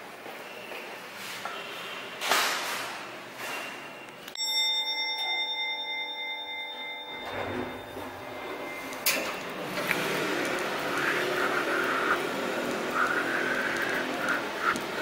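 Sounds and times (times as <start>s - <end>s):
lift humming: 6.4s - 15.0s
lift doors sliding open: 7.2s - 10.6s.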